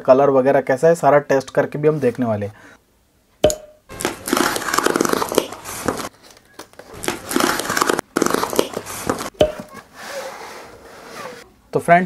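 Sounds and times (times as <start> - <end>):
knife slitting packing tape: 3.9 - 6.1, 6.9 - 9.3.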